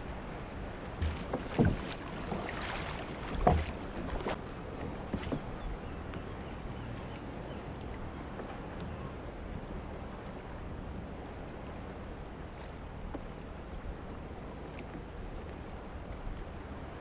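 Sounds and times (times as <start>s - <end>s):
small waves lapping against hull: 0.0s - 17.0s
faint ticks: 6.0s - 9.7s, 11.4s - 11.7s, 14.7s - 16.5s.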